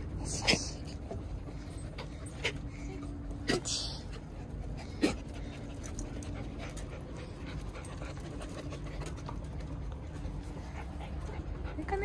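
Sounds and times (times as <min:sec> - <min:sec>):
dogs panting: 0:00.0 - 0:12.0
steady low rumble: 0:00.0 - 0:12.0.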